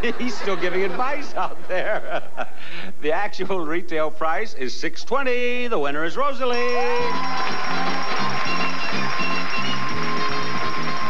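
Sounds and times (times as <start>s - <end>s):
upbeat band music: 6.5s - 11.0s
audience applause and cheering: 6.6s - 11.0s.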